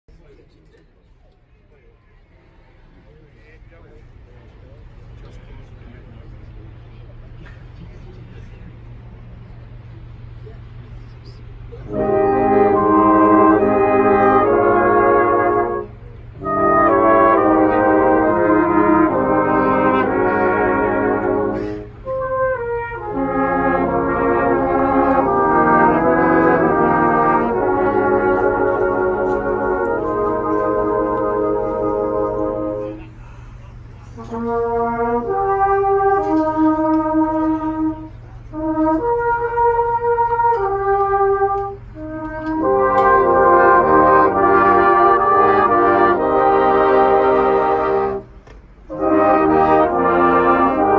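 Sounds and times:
brass band playing chords: 0:11.5 - 0:50.9.

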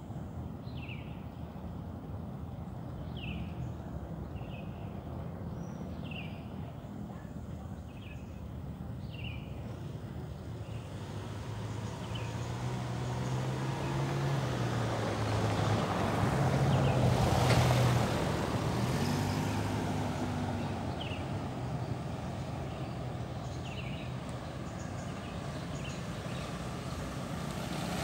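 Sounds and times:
vehicle engine passing by: 0:10.7 - 0:28.0.

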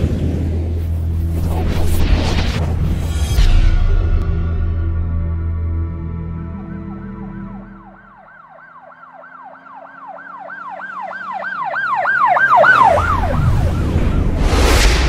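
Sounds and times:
low music: 0:03.3 - 0:08.3
yelping siren: 0:06.4 - 0:14.5.

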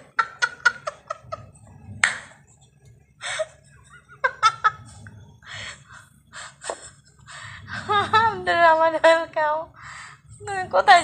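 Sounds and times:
woman laughing: 0:00.0 - 0:01.6, 0:03.2 - 0:05.7.

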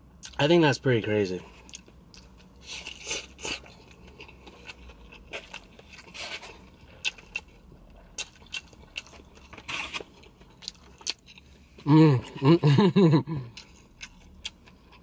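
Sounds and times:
person chewing noodles: 0:01.5 - 0:12.7, 0:13.3 - 0:15.0.

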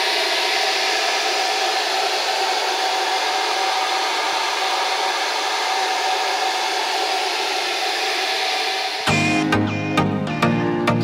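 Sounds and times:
hair dryer blowing air: 0:00.0 - 0:09.1.

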